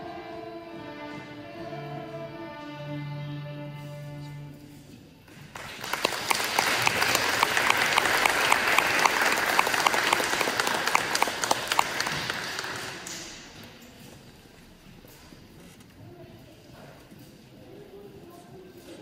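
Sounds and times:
audience applauding: 5.4 - 13.5.

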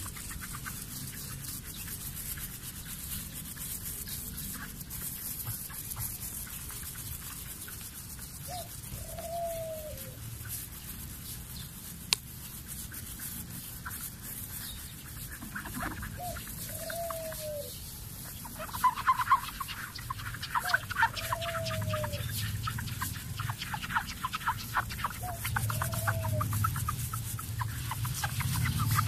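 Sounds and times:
sponge rubbing on glass: 0.0 - 29.0.

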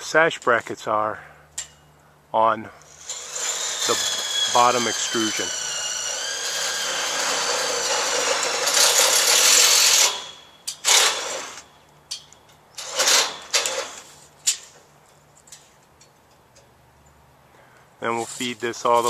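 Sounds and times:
metal shaft scraping: 2.9 - 11.7.

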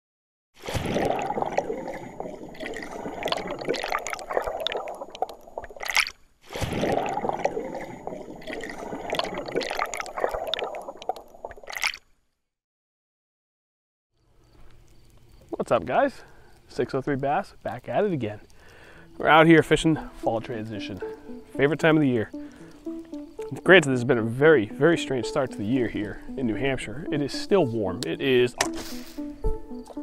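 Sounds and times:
short louder water rush: 0.6 - 11.0
water gurgling and splashing: 0.6 - 12.0.

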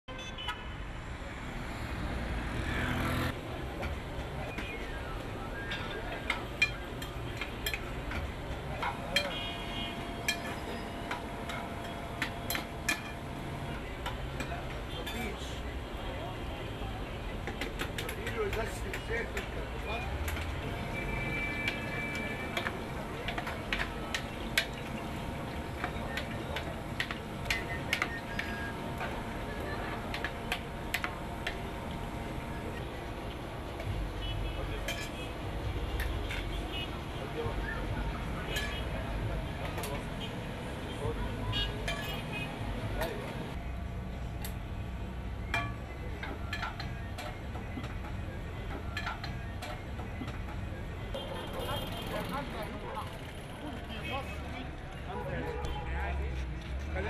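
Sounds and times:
utensils and dishes clinking: 5.6 - 9.4, 10.0 - 13.4, 34.8 - 35.3, 38.5 - 38.9, 41.8 - 42.4, 45.5 - 50.4
metal utensil clinking on pots: 10.3 - 13.2, 34.8 - 35.2.

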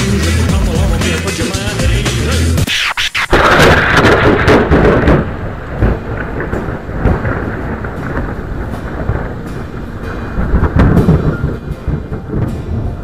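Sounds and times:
thunder crack and rumble: 3.3 - 13.0.

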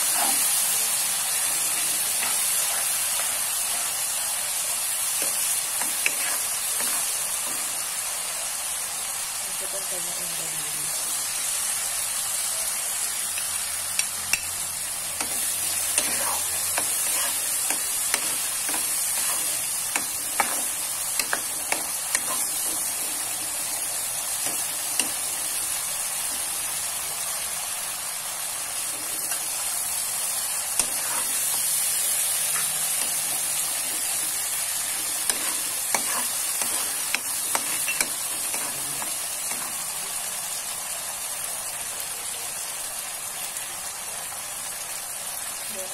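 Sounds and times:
sizzling in a wok: 0.0 - 45.9
spatula scraping pan: 5.2 - 7.8, 15.1 - 26.5, 30.6 - 39.9.

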